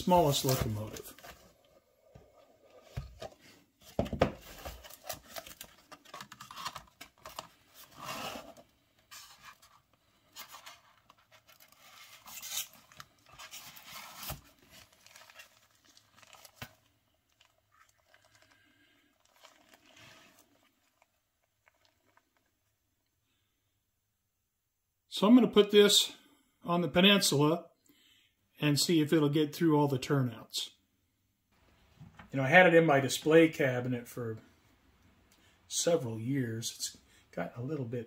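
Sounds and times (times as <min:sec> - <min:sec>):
cardboard box opening: 0:02.7 - 0:09.8.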